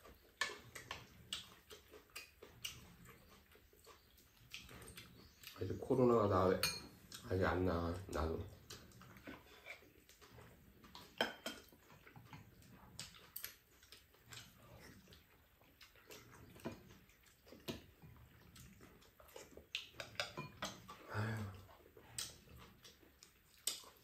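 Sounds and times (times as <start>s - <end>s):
utensils clicking on bowls: 19.8s - 21.0s.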